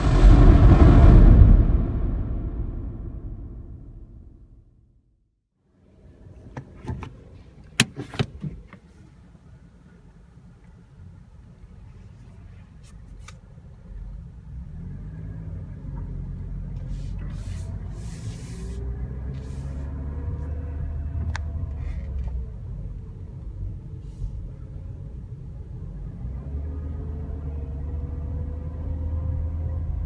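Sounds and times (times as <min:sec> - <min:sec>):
car engine rumble from cabin: 0:05.7 - 0:30.0.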